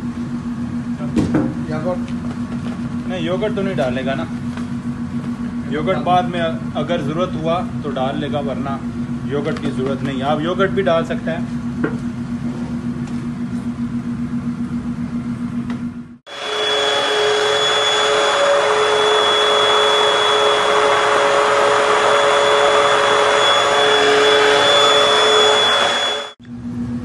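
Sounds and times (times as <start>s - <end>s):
steady low hum: 0.0s - 27.0s
stick blender motor whining: 16.3s - 26.4s.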